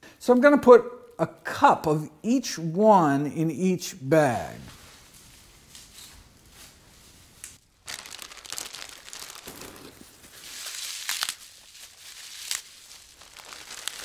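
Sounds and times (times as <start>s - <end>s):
kale leaves tearing: 7.4s - 14.0s.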